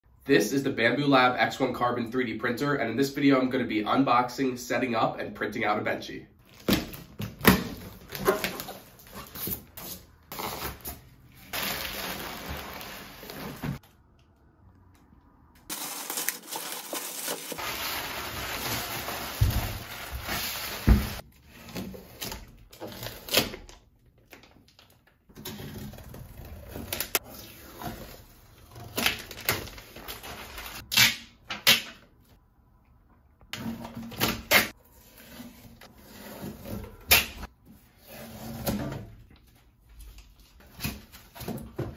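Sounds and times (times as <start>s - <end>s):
cardboard rustling and scraping: 7.7s - 13.8s, 15.7s - 23.3s
tape and plastic wrap pulled off: 15.7s - 21.2s.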